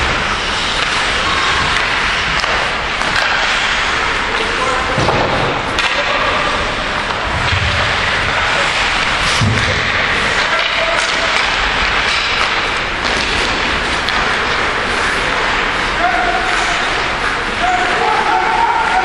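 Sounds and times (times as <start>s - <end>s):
sticks and puck clattering: 0.0s - 19.0s
skates scraping on ice: 6.5s - 19.0s.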